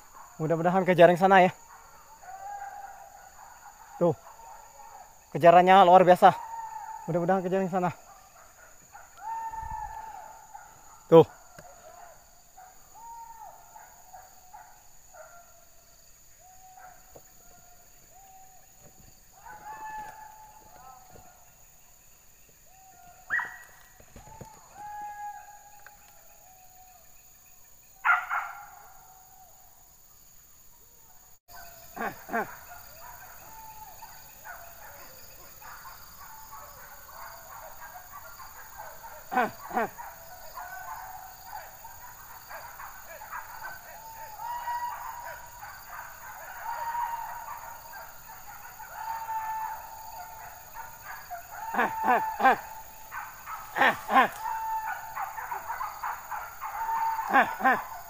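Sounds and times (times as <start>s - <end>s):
dogs barking: 0.0s - 15.7s, 16.4s - 21.6s, 22.9s - 24.0s, 28.0s - 29.2s, 31.5s - 58.0s
dogs baying: 1.6s - 5.2s, 28.0s - 29.2s, 31.5s - 58.0s.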